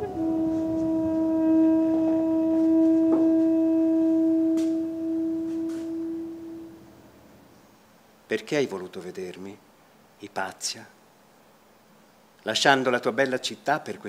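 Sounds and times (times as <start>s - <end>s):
long low brass note: 0.0s - 7.6s.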